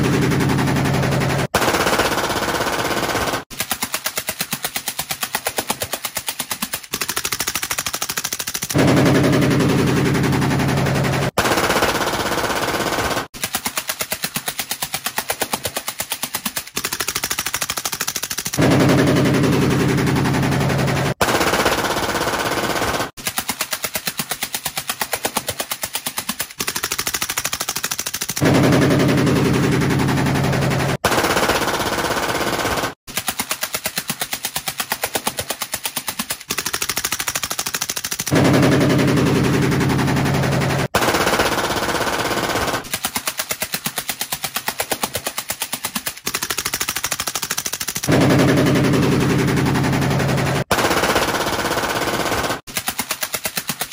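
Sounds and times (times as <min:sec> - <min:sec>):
automatic gunfire bursts: 0:00.0 - 0:04.3, 0:06.9 - 0:13.7, 0:16.8 - 0:23.4, 0:26.6 - 0:33.3, 0:36.5 - 0:43.0, 0:46.3 - 0:52.8.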